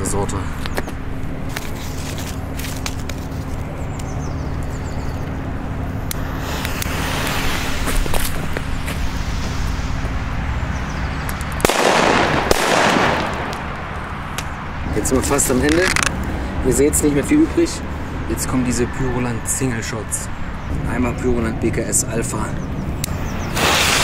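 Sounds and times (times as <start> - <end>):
jet-flame lighter hissing: 6.0 - 10.0, 23.4 - 24.0
firecracker bang: 11.6 - 13.8, 23.6 - 24.0.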